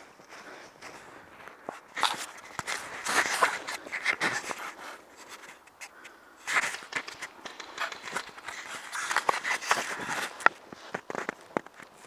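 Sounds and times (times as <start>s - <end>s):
footsteps crunching through snow: 0.0s - 5.4s.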